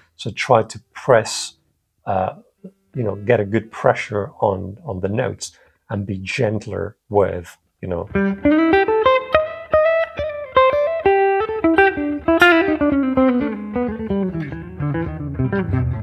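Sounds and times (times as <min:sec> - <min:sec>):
electric guitar picked notes: 0:08.1 - 0:16.0.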